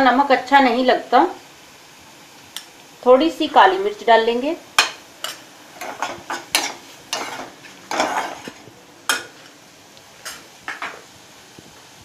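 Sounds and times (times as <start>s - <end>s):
ladle scraping a metal pan: 5.2s - 8.6s.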